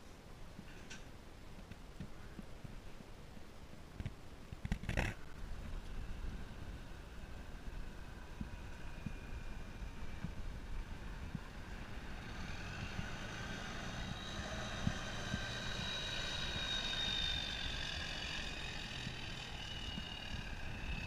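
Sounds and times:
wind buffeting microphone: 4.7s - 21.0s
truck driving past: 6.8s - 21.0s.

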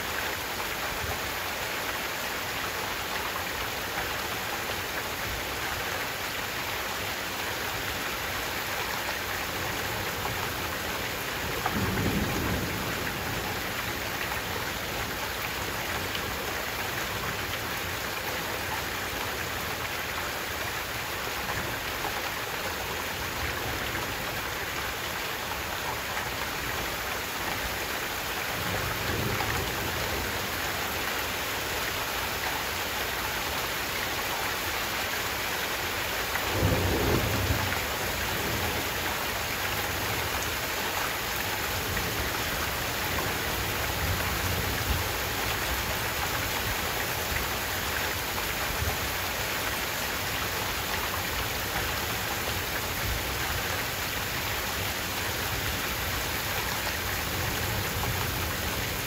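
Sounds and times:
heavy rain: 0.0s - 59.0s
thunder rumbling: 36.5s - 37.8s.

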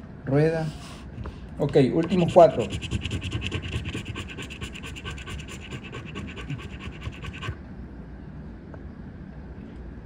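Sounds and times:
scratch card being scraped: 2.0s - 7.6s.

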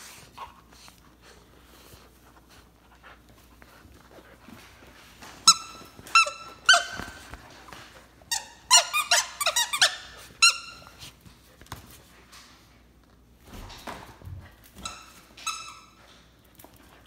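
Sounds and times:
dog toy squeaking: 5.4s - 7.2s, 8.3s - 10.9s.

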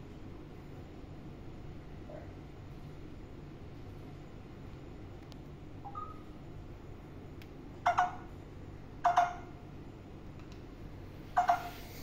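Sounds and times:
parakeet calling: 7.8s - 8.3s, 9.0s - 9.5s, 11.4s - 12.0s.

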